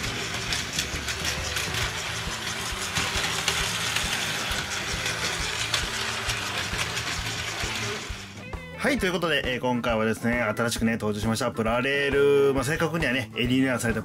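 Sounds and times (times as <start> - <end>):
wheels clicking over track: 0.0 - 8.4
toy train motor whir: 0.0 - 8.6.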